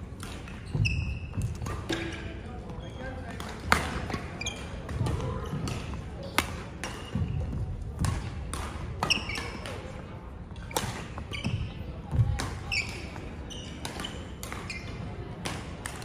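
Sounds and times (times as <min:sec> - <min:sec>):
racket hitting shuttlecock: 0:00.2 - 0:02.3, 0:03.3 - 0:04.3, 0:08.0 - 0:09.8, 0:10.6 - 0:13.1, 0:13.8 - 0:14.7
shoes squeaking on wooden floor: 0:00.5 - 0:01.7.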